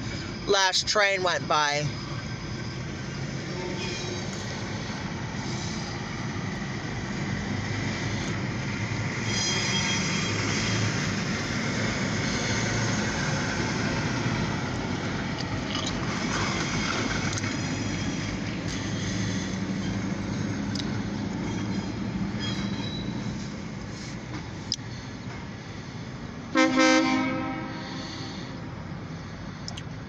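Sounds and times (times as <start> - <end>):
locomotive engine rumble: 0.0 - 30.0
wheel and rail noise: 0.0 - 30.0.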